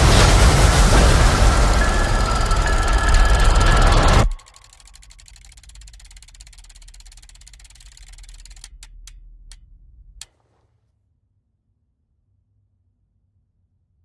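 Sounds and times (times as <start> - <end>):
low hum: 0.0 - 10.3
zoetrope mechanism ticking: 0.9 - 10.4.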